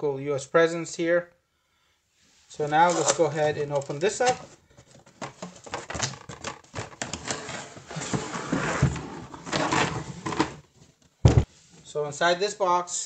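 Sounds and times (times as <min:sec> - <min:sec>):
case sliding out of cardboard: 0:02.8 - 0:10.6
cardboard packaging clicks and knocks: 0:02.9 - 0:07.4
dull thump: 0:11.2 - 0:11.5.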